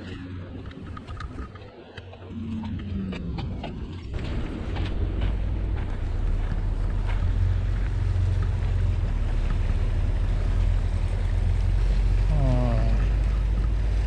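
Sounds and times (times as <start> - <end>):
ship engine drone: 0.0 - 14.0
wind and sea hiss: 4.1 - 14.0.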